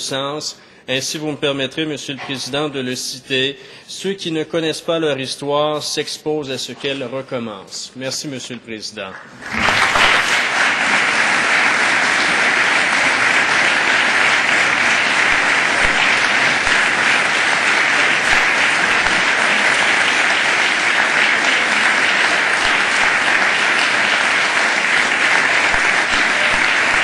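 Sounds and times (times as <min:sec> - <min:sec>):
crowd applauding: 0:09.2 - 0:27.0.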